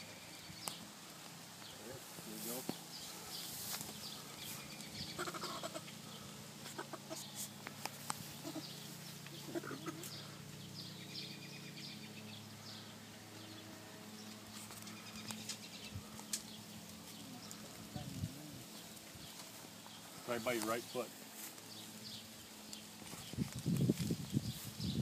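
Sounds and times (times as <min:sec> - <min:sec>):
chickens clucking: 0:03.1 - 0:10.5.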